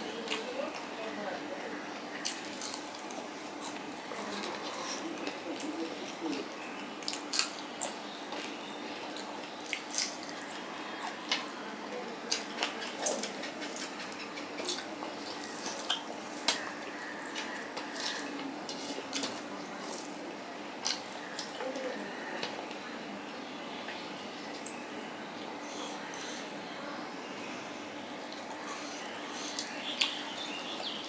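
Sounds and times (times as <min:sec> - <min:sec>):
chewing and mouth smacks: 0:07.0 - 0:11.5, 0:12.3 - 0:20.2, 0:20.8 - 0:21.6.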